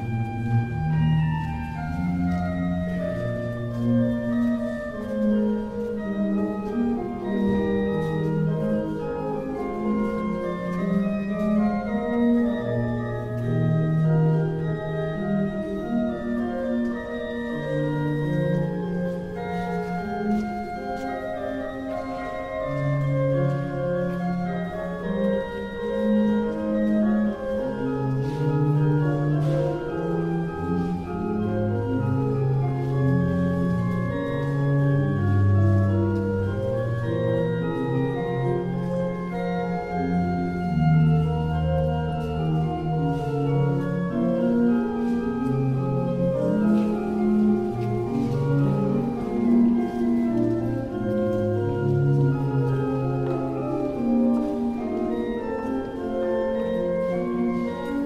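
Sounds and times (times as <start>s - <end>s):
organ playing slow chords: 0.0s - 58.0s.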